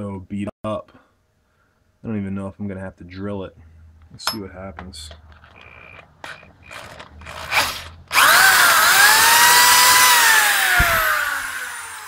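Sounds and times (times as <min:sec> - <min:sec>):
power drill whining: 0:05.4 - 0:12.0.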